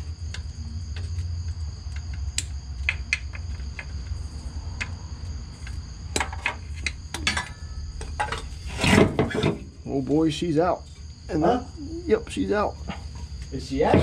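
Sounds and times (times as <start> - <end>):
low hum: 3.4 - 11.2.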